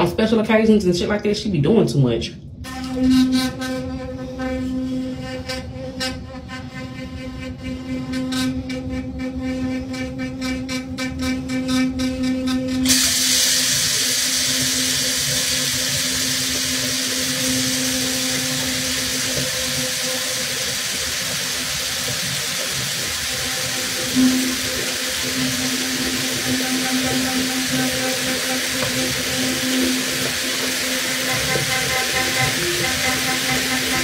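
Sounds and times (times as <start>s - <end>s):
low hum: 2.1s - 34.0s
tap water running: 12.6s - 34.0s.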